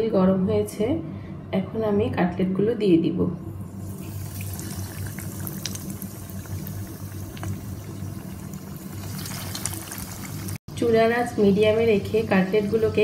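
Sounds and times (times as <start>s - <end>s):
low steady hum: 0.0s - 13.0s
hot oil sizzling in a pan: 3.8s - 10.6s.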